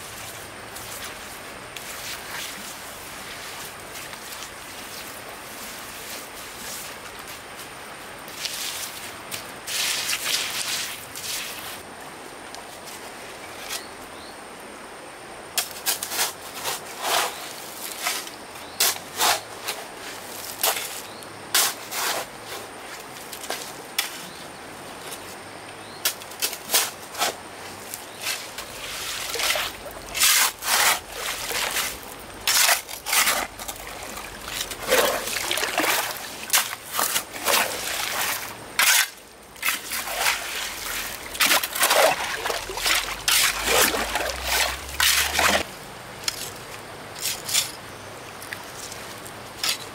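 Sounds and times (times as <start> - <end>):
water splashing and sloshing: 26.4 - 47.8.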